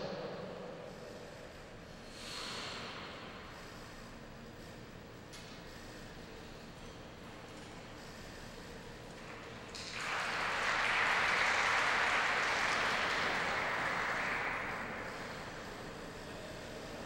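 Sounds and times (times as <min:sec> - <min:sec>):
audience clapping: 0:09.1 - 0:16.7.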